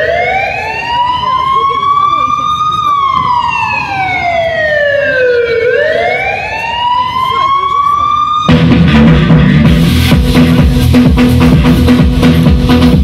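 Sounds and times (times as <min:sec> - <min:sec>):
siren wail over loudspeakers: 0:00.0 - 0:08.7.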